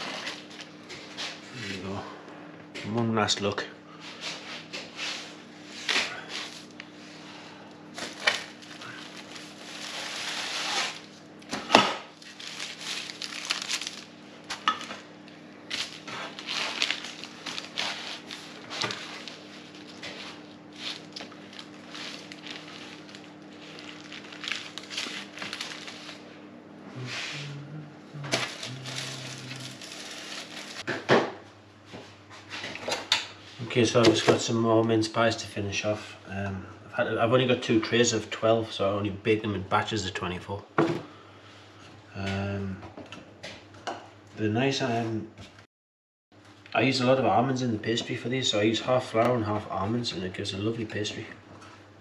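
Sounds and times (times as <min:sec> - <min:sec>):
rustling and scraping on baking paper: 0:00.0 - 0:01.7, 0:04.0 - 0:11.2, 0:12.1 - 0:15.0, 0:15.7 - 0:26.3, 0:27.0 - 0:27.4, 0:28.3 - 0:30.9
steady low hum: 0:00.0 - 0:45.6.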